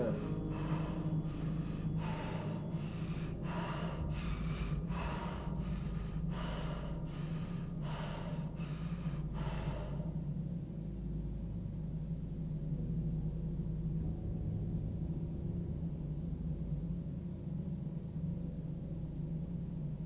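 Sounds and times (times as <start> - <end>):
person breathing hard: 0.0 - 10.7
steady low hum: 0.0 - 20.0.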